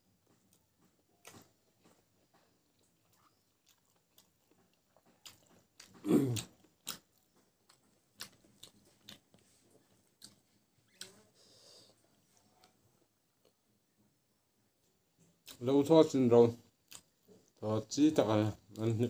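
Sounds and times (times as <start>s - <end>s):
chewing with wet mouth clicks: 2.7s - 11.2s, 16.8s - 17.6s.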